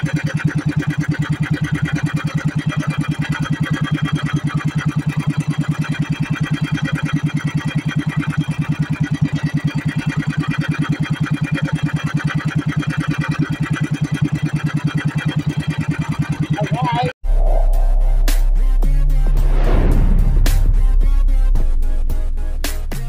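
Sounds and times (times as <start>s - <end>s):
boat engine putter: 0.0s - 16.9s.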